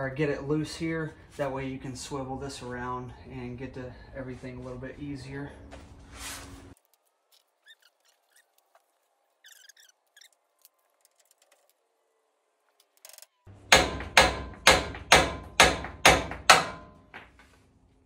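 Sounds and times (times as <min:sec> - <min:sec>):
hammer striking steel: 0:13.6 - 0:17.3.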